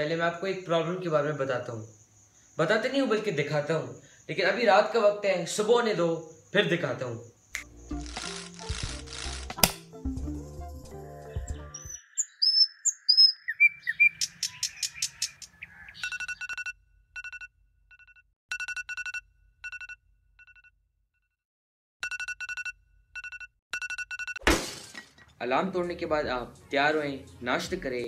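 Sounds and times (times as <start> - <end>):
bird chirps: 11.2 - 16.7
electronic alarm beeping: 16.0 - 20.6, 22.0 - 24.4.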